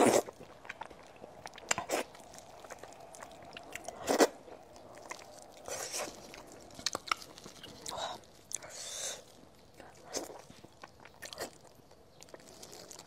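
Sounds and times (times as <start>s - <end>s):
person chewing food: 0.0s - 13.0s.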